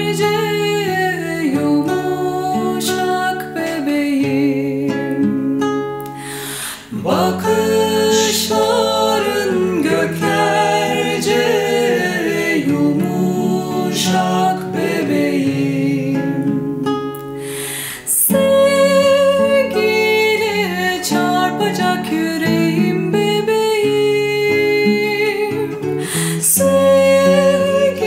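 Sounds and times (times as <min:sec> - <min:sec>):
woman singing: 0:00.0 - 0:17.1, 0:17.9 - 0:28.0
acoustic guitar: 0:00.0 - 0:28.0
man singing: 0:06.9 - 0:16.5.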